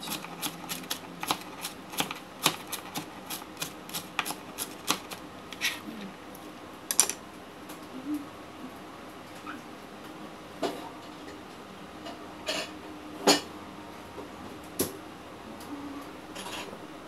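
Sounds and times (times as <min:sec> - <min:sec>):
knife chopping on plastic board: 0:00.1 - 0:05.2.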